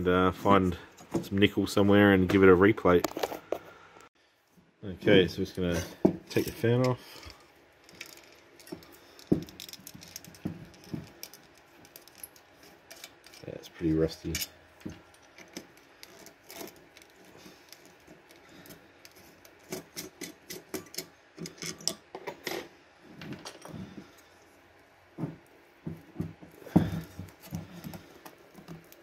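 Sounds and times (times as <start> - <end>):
screwdriver clicks and scrapes: 7.9 - 13.5, 14.2 - 22.0.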